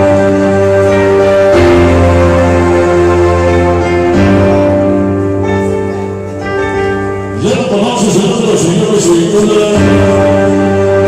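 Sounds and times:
music over sound system: 0.0 - 11.0.

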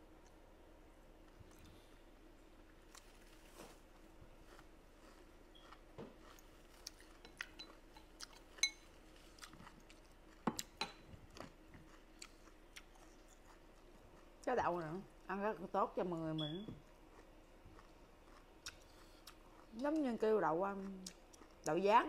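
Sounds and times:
chewing and mouth clicks: 4.4 - 14.4, 16.8 - 20.1, 20.7 - 21.7.

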